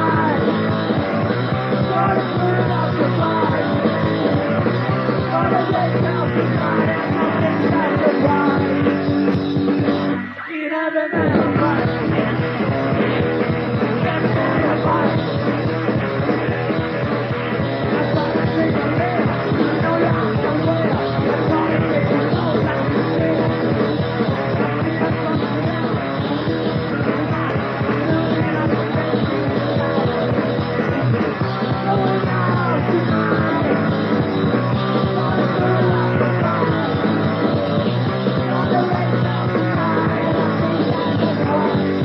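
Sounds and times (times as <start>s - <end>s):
bass guitar: 0.0s - 10.4s, 11.2s - 42.0s
distorted electric guitars: 0.0s - 42.0s
drums: 0.0s - 42.0s.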